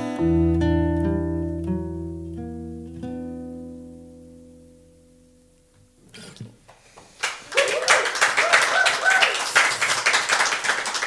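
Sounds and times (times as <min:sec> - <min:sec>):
acoustic guitar chord: 0:00.0 - 0:05.6
people clapping: 0:06.7 - 0:11.0.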